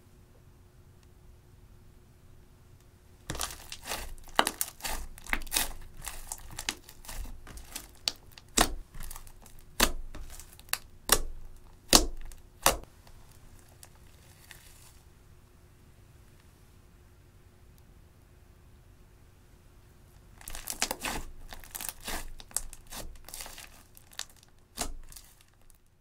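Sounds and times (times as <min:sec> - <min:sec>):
slime squelching and popping: 0:03.3 - 0:12.9, 0:20.4 - 0:25.8.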